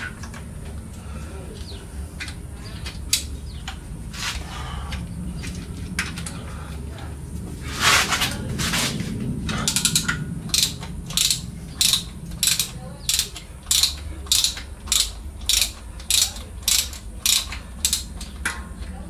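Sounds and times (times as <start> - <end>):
ratchet wrench clicking: 9.5 - 18.6.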